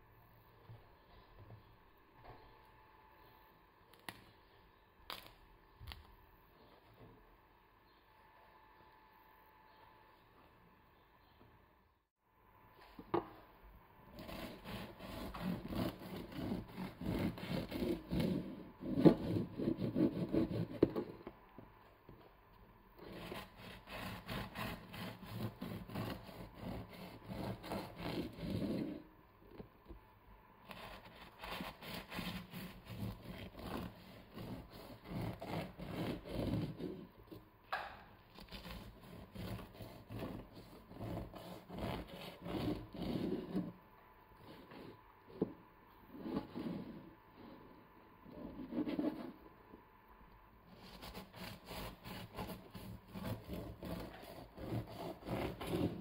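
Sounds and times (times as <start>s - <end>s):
knife sawing through bread crust: 14.1s - 20.9s, 23.0s - 29.0s, 30.6s - 37.1s, 38.4s - 43.7s, 50.7s - 56.0s.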